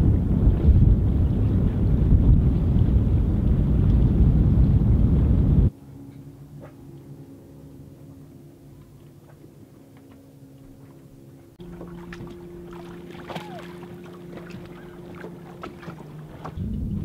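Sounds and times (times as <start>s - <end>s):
steady low hum: 0.0s - 17.0s
water splashing: 6.5s - 17.0s.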